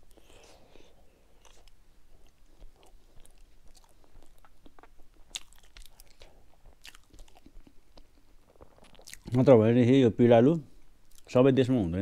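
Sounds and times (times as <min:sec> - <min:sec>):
person chewing close to microphone: 0:00.1 - 0:09.4, 0:11.0 - 0:11.3.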